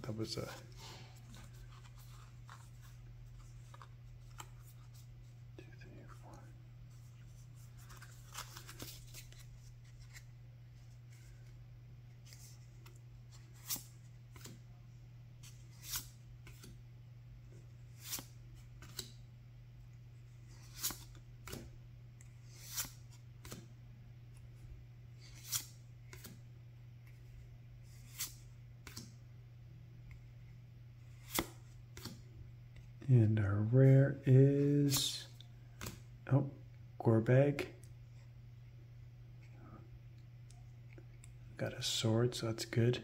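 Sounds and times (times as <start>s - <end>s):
steady low hum: 0.0s - 43.0s
cards sliding with a swish: 12.2s - 14.6s, 15.4s - 16.8s, 18.0s - 19.2s, 20.4s - 21.7s, 22.4s - 23.7s, 25.2s - 26.4s, 27.9s - 29.1s, 31.1s - 32.2s.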